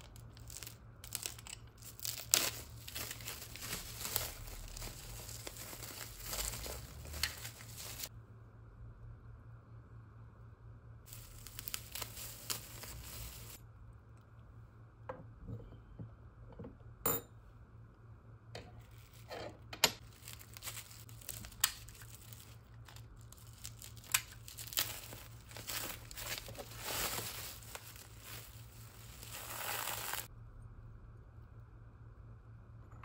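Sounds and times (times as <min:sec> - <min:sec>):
bubble wrap crinkling and tearing: 0:00.0 - 0:08.1, 0:11.1 - 0:13.6, 0:20.0 - 0:30.3.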